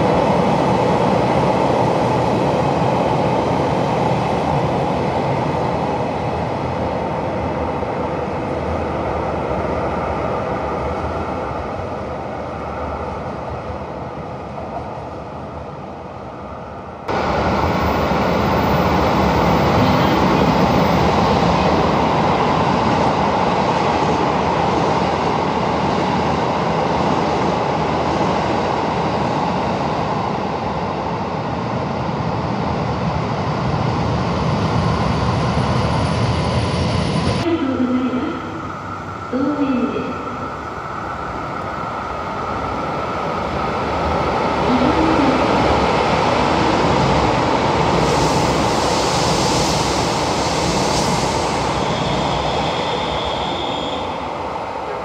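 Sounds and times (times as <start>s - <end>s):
electric train approaching: 0.0s - 55.0s
electric train running past: 0.0s - 55.0s
station ambience: 35.4s - 48.8s.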